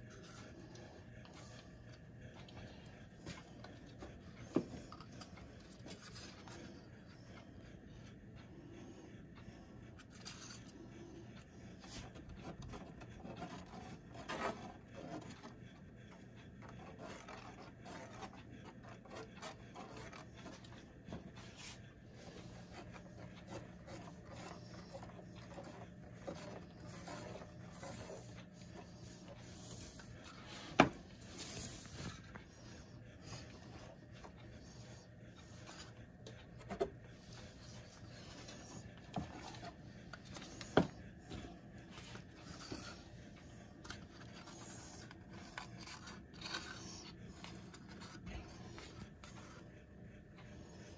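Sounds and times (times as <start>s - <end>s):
low steady hum: 0.0s - 50.9s
gloved hand rubbing and scraping: 16.8s - 49.8s.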